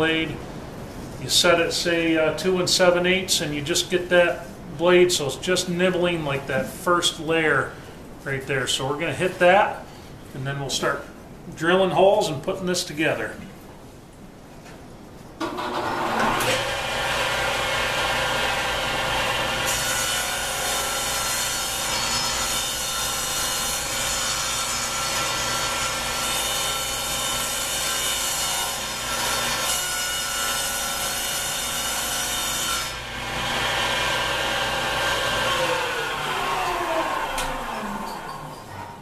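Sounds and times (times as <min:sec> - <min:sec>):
table saw cutting plywood: 0:15.4 - 0:39.0.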